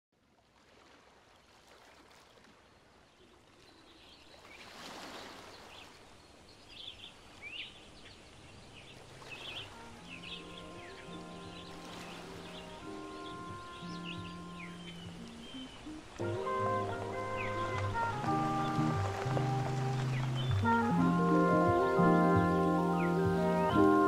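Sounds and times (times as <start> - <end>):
birds chirping: 3.7 - 24.0
low sustained musical tone: 9.8 - 24.0.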